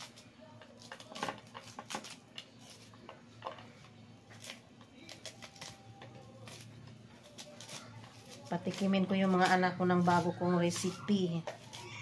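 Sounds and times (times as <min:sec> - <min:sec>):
knife scraping corn kernels: 0:04.3 - 0:12.0.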